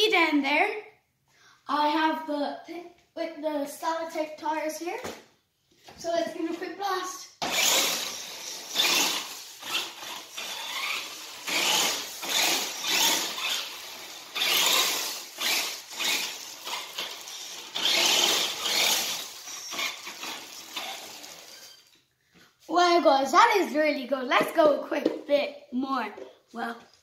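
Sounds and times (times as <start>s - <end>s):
small electric motor whirring: 7.4s - 22.0s
toy wheels skidding on tiles: 7.4s - 22.0s.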